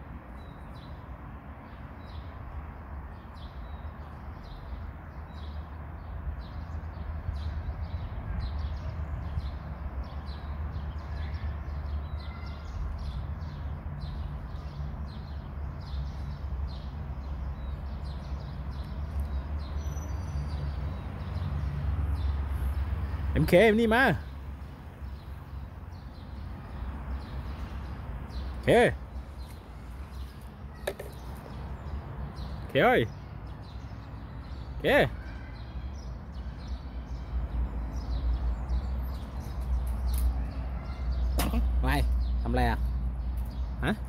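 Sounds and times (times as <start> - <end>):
bird calls: 25.0 - 37.4.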